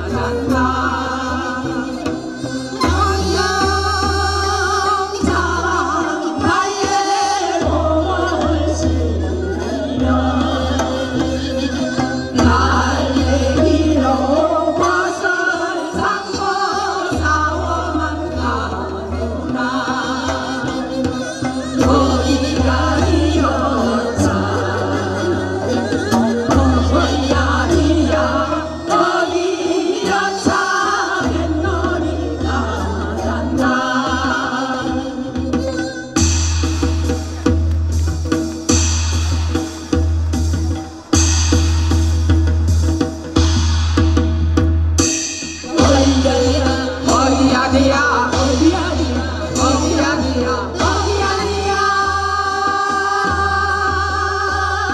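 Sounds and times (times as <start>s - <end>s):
women singing into microphones: 0.0s - 36.5s, 45.6s - 54.9s
steady drum beat: 0.0s - 54.9s.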